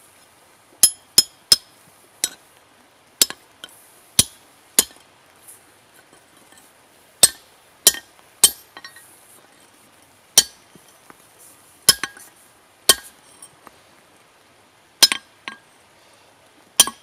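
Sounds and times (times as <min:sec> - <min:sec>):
hammer striking steel punch: 0:04.2 - 0:05.0, 0:07.2 - 0:08.6, 0:11.9 - 0:12.2, 0:12.9 - 0:13.1, 0:15.0 - 0:15.3, 0:16.8 - 0:17.0.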